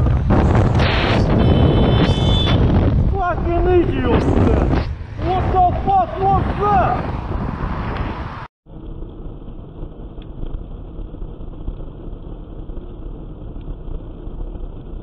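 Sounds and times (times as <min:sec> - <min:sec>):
wind rushing over microphone: 0:00.0 - 0:09.4.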